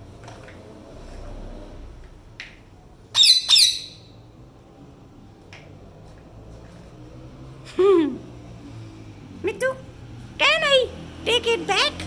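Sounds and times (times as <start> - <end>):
parakeet squawking: 3.1 - 4.2.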